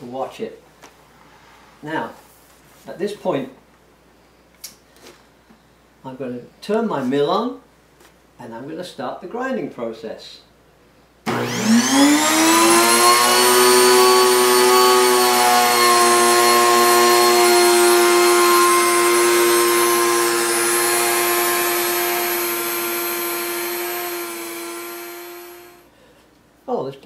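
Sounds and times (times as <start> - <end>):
flour mill motor whine: 11.3 - 25.8.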